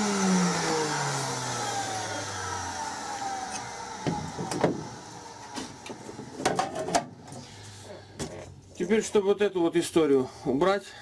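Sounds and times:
grinder motor spinning down: 0.0s - 6.5s.

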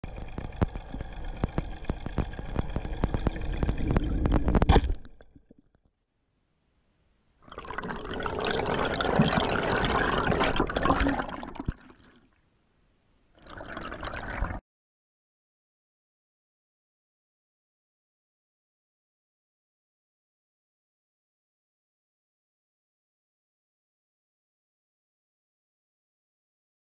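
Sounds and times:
underwater drone: 0.0s - 5.5s
rush of bubbles: 0.0s - 5.7s, 7.4s - 12.3s, 13.4s - 14.6s
sharp underwater clicks: 0.0s - 5.8s.

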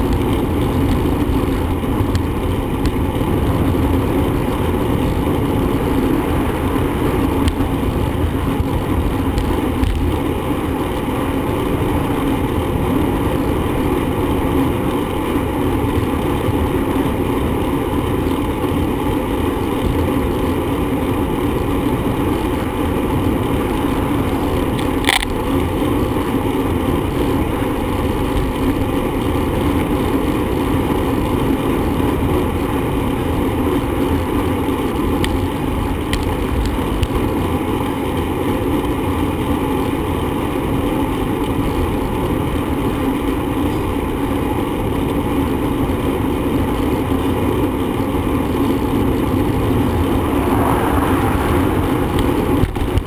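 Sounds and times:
wind rushing over microphone: 0.0s - 20.2s, 47.3s - 53.0s
bicycle road noise: 0.0s - 53.0s.

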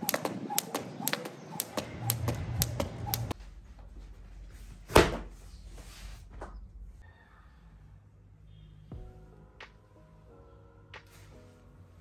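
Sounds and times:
exercise mat slapping floor: 0.0s - 3.4s
skipping rope slapping tiled floor: 0.0s - 3.4s.

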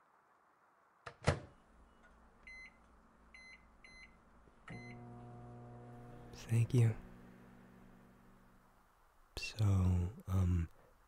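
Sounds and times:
keypad beeps: 3.4s - 5.0s
microwave running hum: 3.9s - 8.8s.

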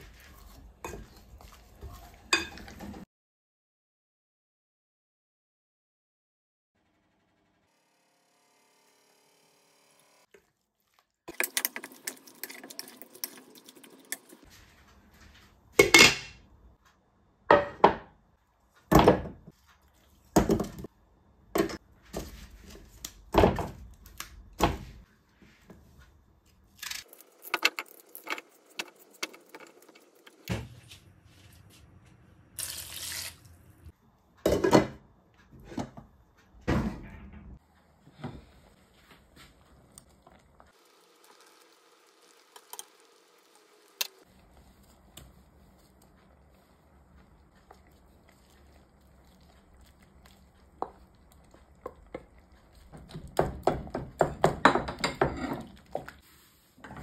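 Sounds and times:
water running into pot: 11.3s - 14.5s, 39.8s - 44.2s
hands squishing chicken in bowl: 44.3s - 54.3s.

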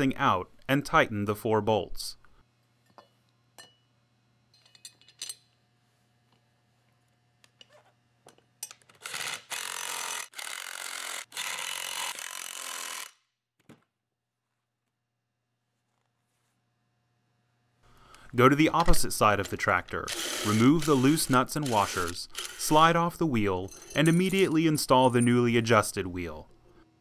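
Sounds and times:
cordless drill-driver running: 9.0s - 13.1s, 20.1s - 22.8s.

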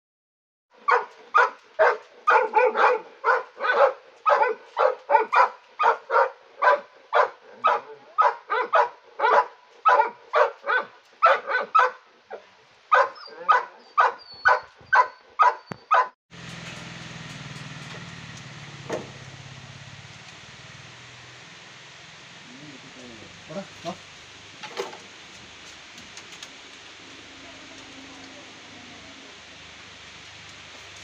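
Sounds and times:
dog barking: 0.8s - 16.1s.

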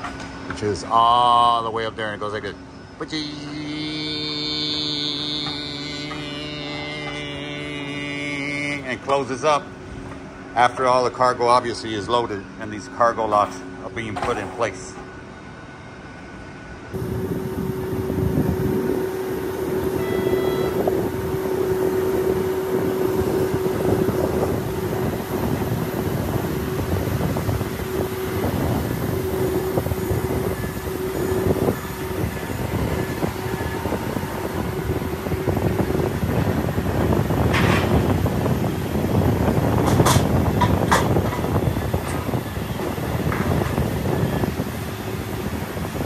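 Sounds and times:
ground machinery running: 0.0s - 15.0s, 16.9s - 46.0s
constant hum: 0.0s - 46.0s.

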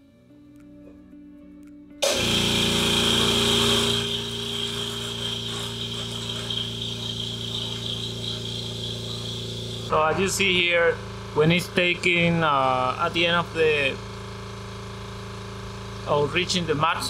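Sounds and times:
air compressor running: 2.0s - 17.0s.

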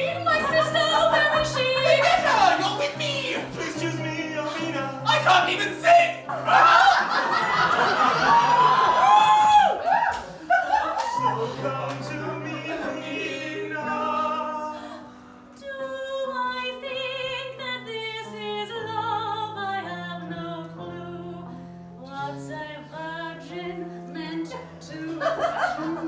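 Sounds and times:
woman singing operatically: 0.0s - 3.4s, 15.6s - 21.4s
backing music low notes: 0.0s - 6.5s.

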